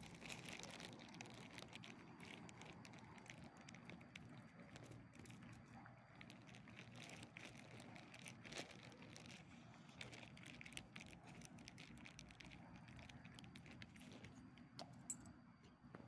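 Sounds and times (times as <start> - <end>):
faint small clicks and rustling: 0.0 - 16.0.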